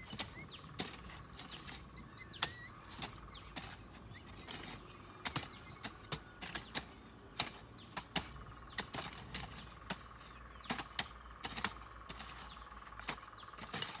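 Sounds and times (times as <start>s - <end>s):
faint bird chirps: 0.0s - 14.0s
hoes chopping soil: 0.0s - 14.0s.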